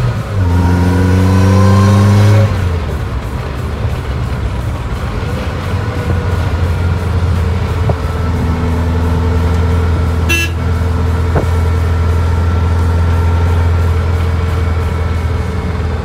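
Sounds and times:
car engine drone from inside cabin: 0.0s - 16.0s.

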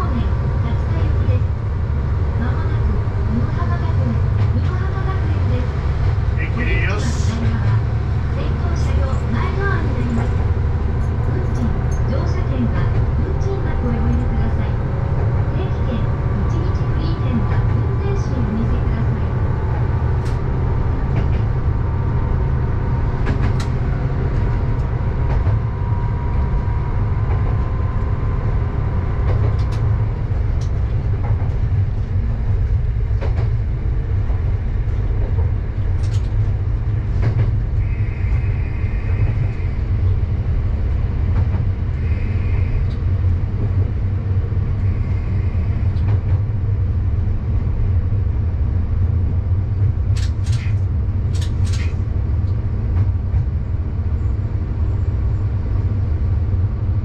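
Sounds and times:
diesel engine drone: 0.0s - 57.0s
wheels clicking over rail joints: 50.1s - 52.0s.

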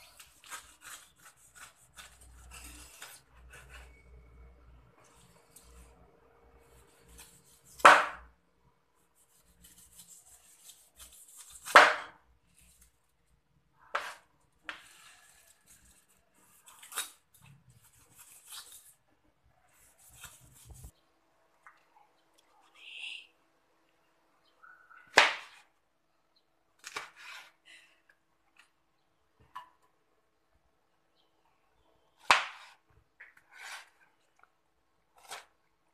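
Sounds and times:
knife crackling through pineapple skin: 0.0s - 4.0s, 9.6s - 12.0s, 14.8s - 19.0s.

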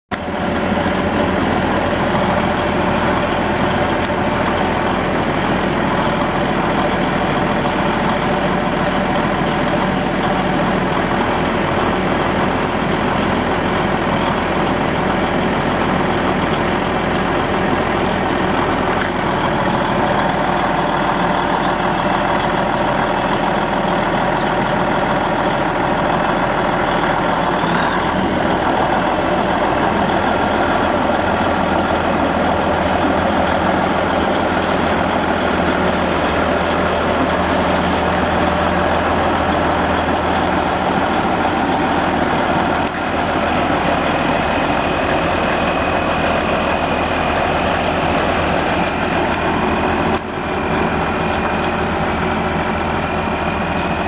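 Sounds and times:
tractor diesel engine running: 0.1s - 54.0s.

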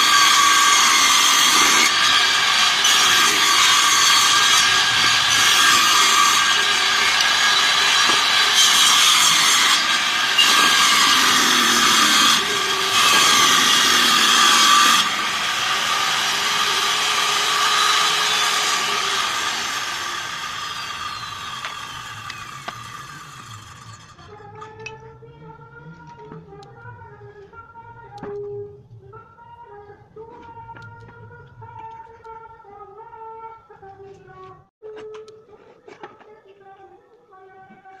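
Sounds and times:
saw cutting wood: 0.0s - 24.2s
table saw whining: 0.0s - 24.2s.

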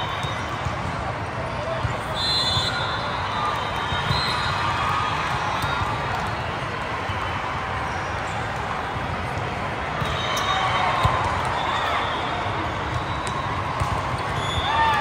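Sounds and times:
hubbub of players and spectators: 0.0s - 15.0s
volleyball hits: 9.2s - 15.0s.

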